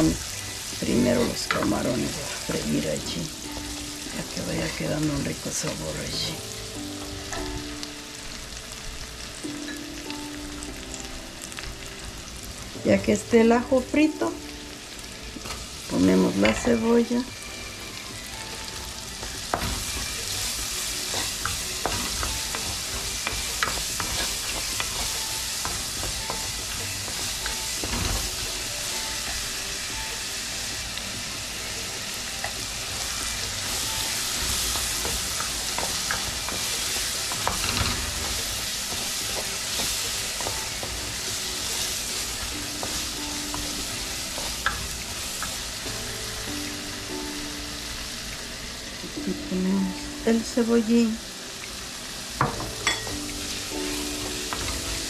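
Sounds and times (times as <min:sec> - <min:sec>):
onion and garlic sizzling: 0:00.0 - 0:55.0
wooden spoon scraping a pot: 0:19.2 - 0:28.4.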